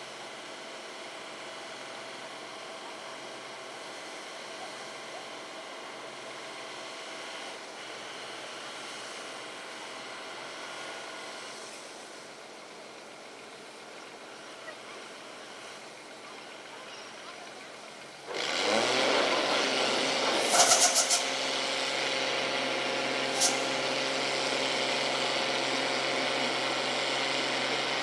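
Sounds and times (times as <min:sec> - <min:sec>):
heavy engine running: 0:00.0 - 0:28.0
steady hiss: 0:23.2 - 0:24.8.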